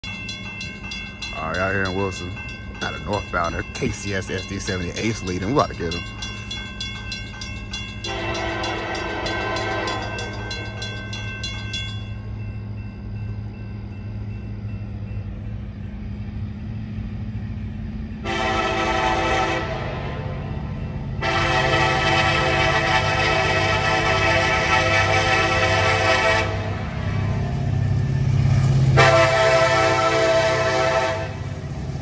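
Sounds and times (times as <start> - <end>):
crossing bell ringing: 0.0 - 16.5
locomotive engine rumbling: 0.0 - 32.0
train horn blasts: 8.0 - 10.4, 18.2 - 20.5, 21.2 - 27.0, 28.8 - 31.6.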